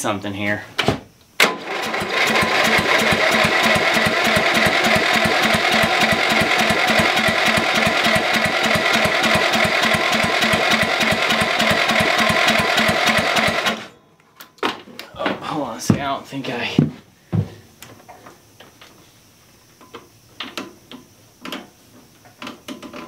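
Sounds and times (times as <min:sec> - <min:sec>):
electric starter cranking engine: 0:01.4 - 0:14.0.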